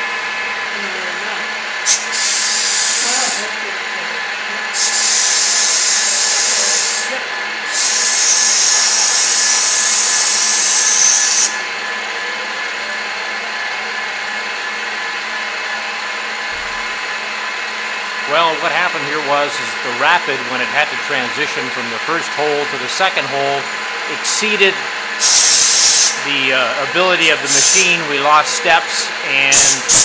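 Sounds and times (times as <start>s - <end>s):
milling machine cutting metal: 1.1s - 30.0s
compressed-air blow gun hissing: 1.8s - 3.5s, 4.7s - 11.6s, 24.2s - 30.0s.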